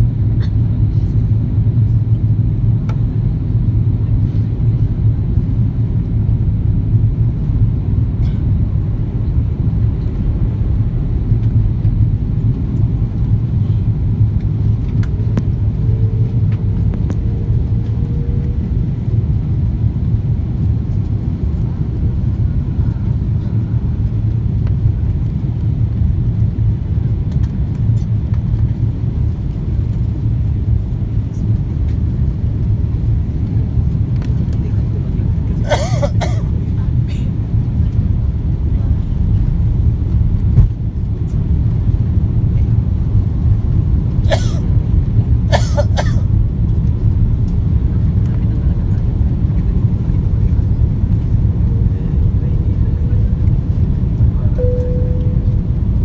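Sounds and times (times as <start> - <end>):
jet engines rumbling in cabin: 0.0 - 56.0
person coughing: 35.6 - 36.5, 44.3 - 44.7, 45.5 - 46.3.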